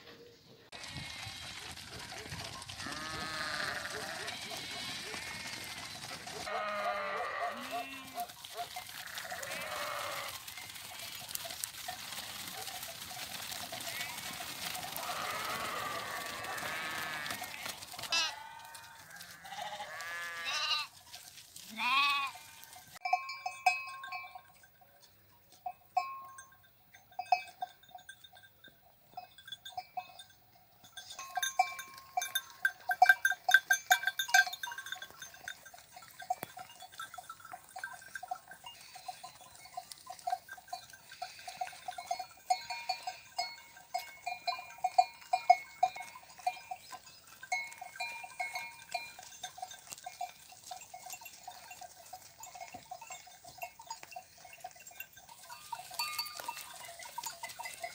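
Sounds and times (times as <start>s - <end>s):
sheep bleating: 0.7s - 1.8s, 2.8s - 8.3s, 8.9s - 11.4s, 13.8s - 14.4s, 15.0s - 20.9s, 21.6s - 22.8s
sheep bells clanking: 0.7s - 57.9s.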